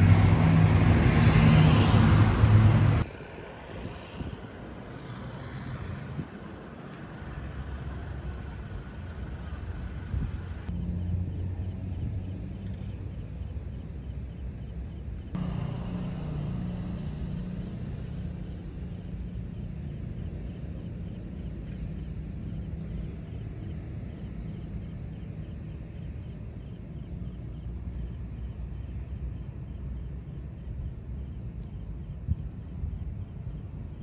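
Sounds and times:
distant road traffic rumble: 0.0s - 34.0s
faint high whine: 8.8s - 34.0s.

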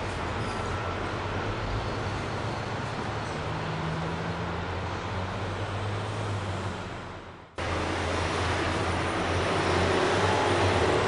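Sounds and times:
locomotive diesel engine drone: 0.0s - 11.0s.

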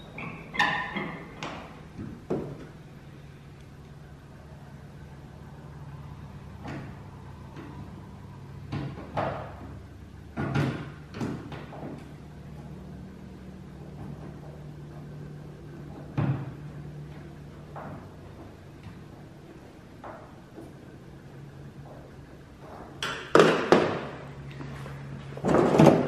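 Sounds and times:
steady low hum: 0.0s - 26.0s
plastic parts knocking and clunking: 0.6s - 2.8s, 8.7s - 12.1s, 21.8s - 24.2s, 25.4s - 26.0s.

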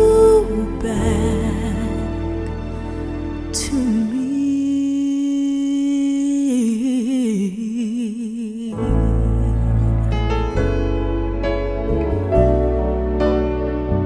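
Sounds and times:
bass and keyboard: 0.0s - 4.6s, 8.8s - 14.0s
soul ballad backing: 0.0s - 14.0s.

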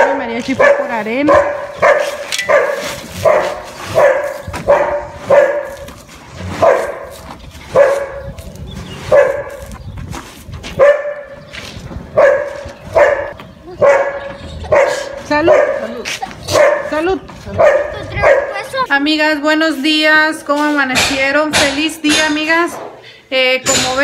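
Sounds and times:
dog barking: 0.0s - 5.9s, 6.5s - 8.3s, 9.1s - 9.7s, 10.8s - 11.4s, 12.2s - 18.8s.

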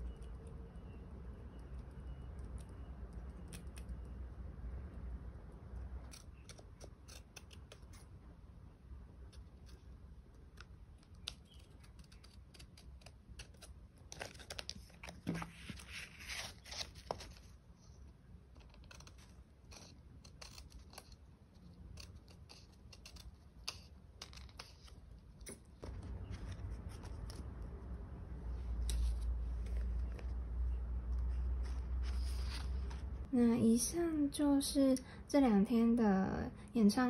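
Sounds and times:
scissors snipping paper: 1.8s - 4.0s, 6.0s - 8.1s, 9.3s - 17.4s, 18.6s - 27.5s
paper rustling: 11.0s - 17.6s, 22.0s - 27.6s, 28.6s - 33.3s.

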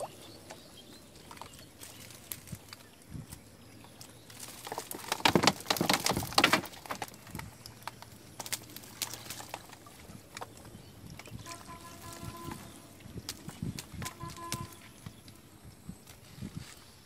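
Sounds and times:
fish rattling into plastic crate: 4.3s - 14.8s.

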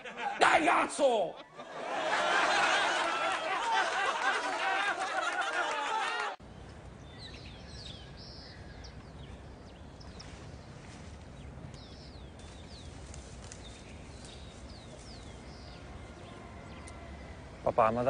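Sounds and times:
low outdoor rumble: 6.4s - 18.0s
small birds chirping: 6.4s - 18.0s.

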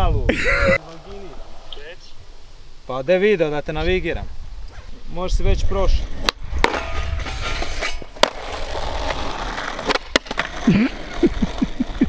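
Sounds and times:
skateboard wheels rolling on concrete: 0.0s - 12.0s
skateboard clacking on ground: 6.0s - 12.0s.

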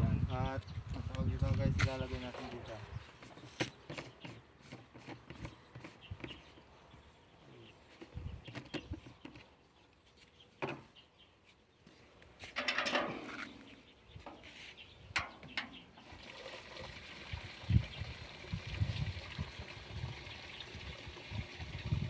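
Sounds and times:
water pouring into a tank: 16.0s - 22.0s.

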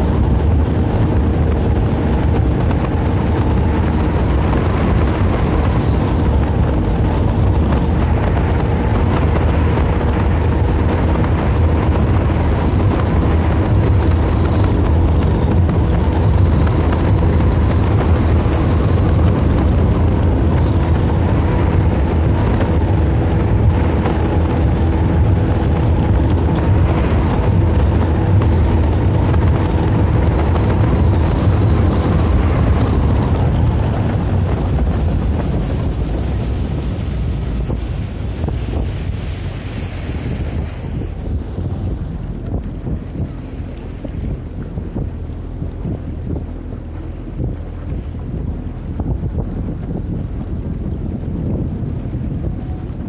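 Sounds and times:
wind rumbling on microphone: 0.0s - 53.0s.

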